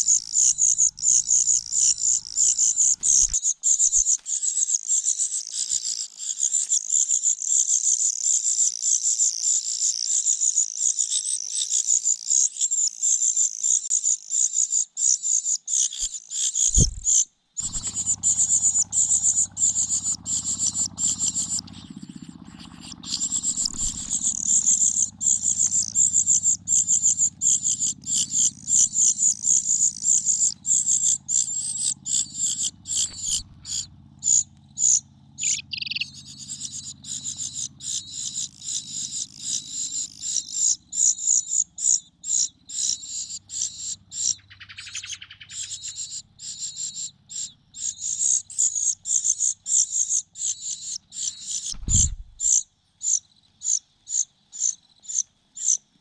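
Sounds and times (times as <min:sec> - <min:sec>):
nestlings cheeping: 0:00.0 - 0:06.8, 0:15.9 - 0:53.8
dull thump: 0:16.7 - 0:17.1, 0:51.7 - 0:52.4.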